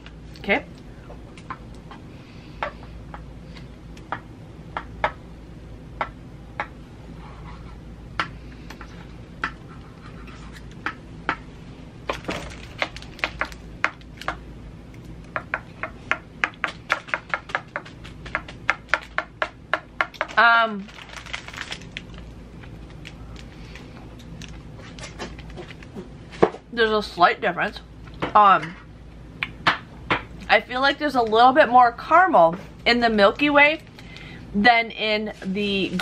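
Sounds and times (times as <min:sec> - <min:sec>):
candy wrapper crackling: 0:12.1 - 0:14.3, 0:20.2 - 0:26.0.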